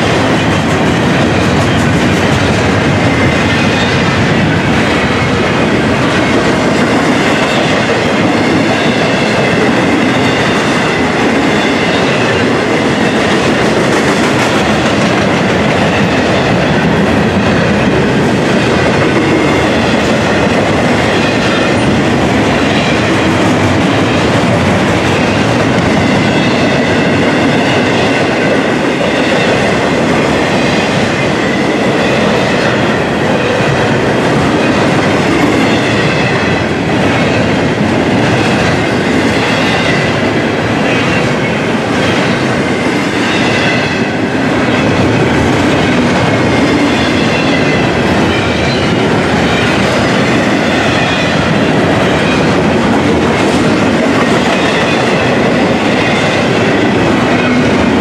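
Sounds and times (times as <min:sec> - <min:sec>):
train wheels clacking on rails: 0:00.0 - 0:58.0.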